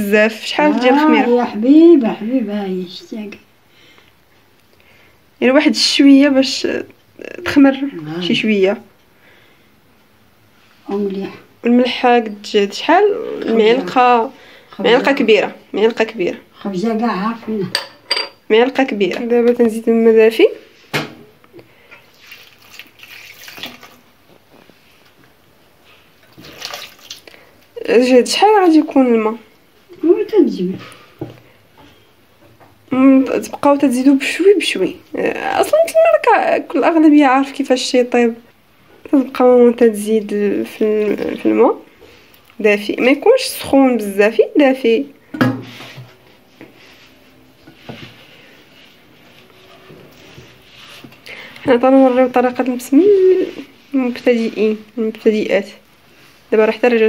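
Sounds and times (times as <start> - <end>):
wet dough squishing: 22.1 - 24.5, 26.1 - 27.4.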